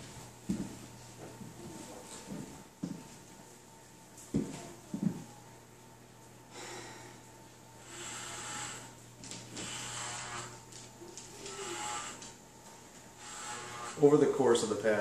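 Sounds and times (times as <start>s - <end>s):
electric hair clippers humming: 7.7s - 12.4s, 13.0s - 14.3s
clippers rasping through hair: 7.8s - 12.4s, 13.1s - 14.2s.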